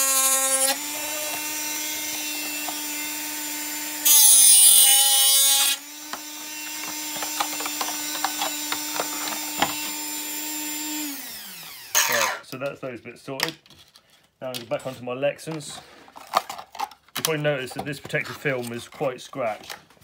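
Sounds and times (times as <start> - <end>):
rotary tool grinding plastic: 0.0 - 12.4
rotary tool whining: 0.0 - 12.4.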